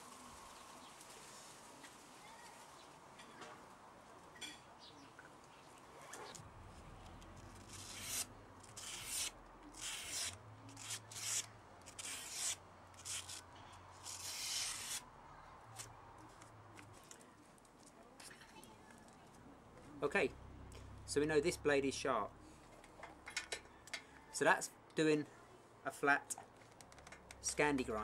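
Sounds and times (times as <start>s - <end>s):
knife slicing paper: 7.7s - 13.4s, 14.0s - 15.0s.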